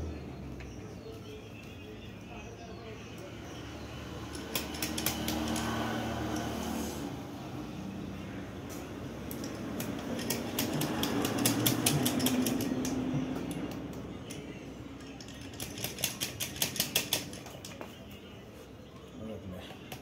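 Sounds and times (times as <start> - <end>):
metal parts and tools clinking: 4.3 - 6.4, 9.3 - 13.0, 15.0 - 17.8.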